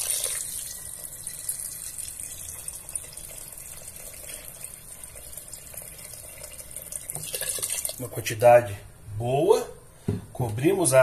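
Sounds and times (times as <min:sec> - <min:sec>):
water pouring into a pot: 0:00.0 - 0:08.0.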